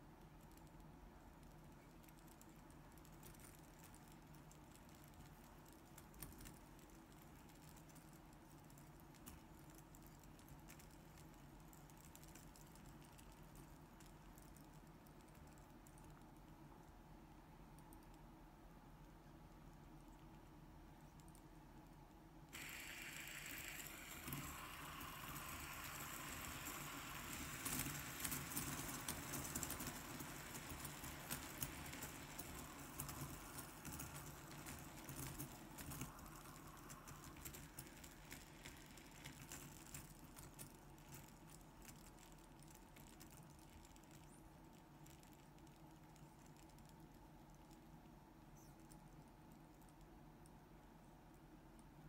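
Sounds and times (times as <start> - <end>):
fidget spinners whirring and rattling: 0.0 - 16.8, 19.2 - 48.0
magnets clicking: 22.6 - 44.4.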